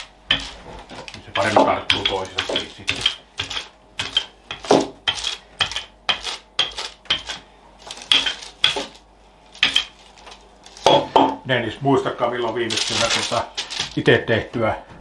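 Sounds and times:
rolling pin clacking on table: 1.4s - 9.0s.

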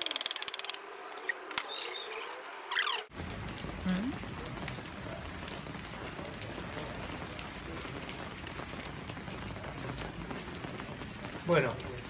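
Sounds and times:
steady rain: 2.4s - 12.0s
wood fire crackling: 3.0s - 12.0s.

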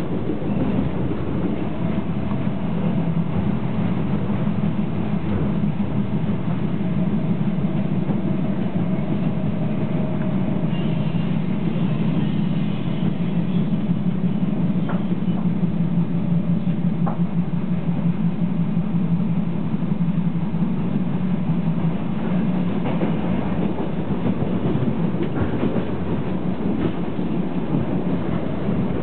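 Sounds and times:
train engine and wheels drone: 0.0s - 29.0s.

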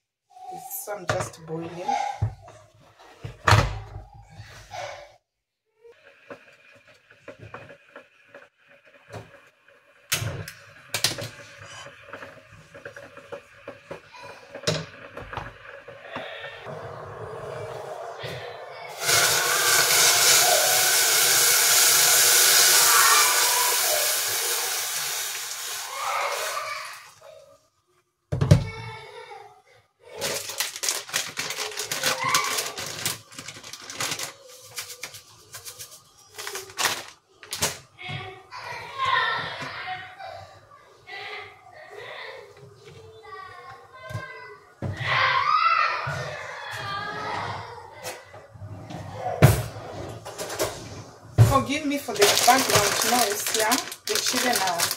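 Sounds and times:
wooden spatula scraping a wok: 11.2s - 21.0s
children calling out: 16.2s - 27.6s, 31.5s - 33.1s, 38.0s - 48.5s
plastic packet crinkling: 30.2s - 37.7s, 52.0s - 54.9s.

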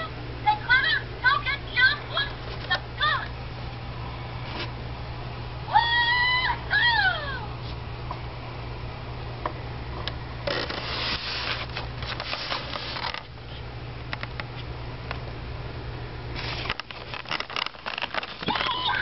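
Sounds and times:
steady low hum: 0.0s - 19.0s
scraping and rustling from handling: 2.3s - 2.8s, 10.4s - 14.7s, 16.3s - 19.0s.

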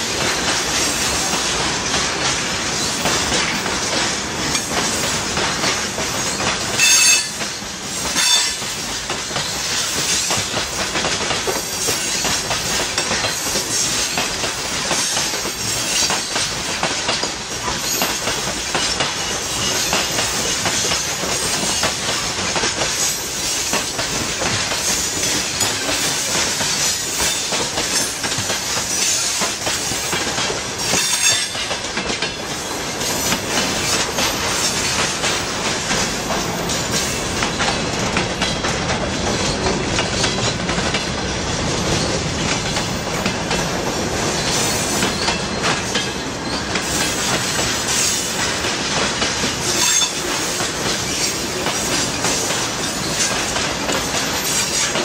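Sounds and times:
train wheels rumbling and clattering: 0.0s - 55.0s
high metallic wheel squeals: 6.8s - 7.4s.

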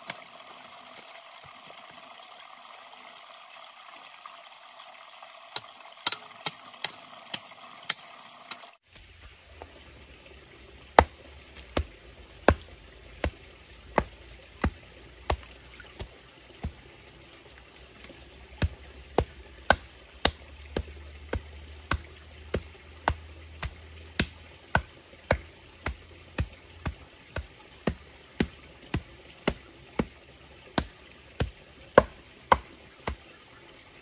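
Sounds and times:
tool striking bamboo: 5.5s - 8.7s, 11.0s - 13.4s, 14.0s - 16.7s, 30.8s - 33.2s.

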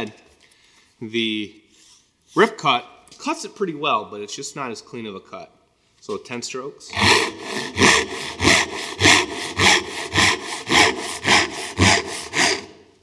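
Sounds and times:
hand saw cutting wood: 6.9s - 12.9s.

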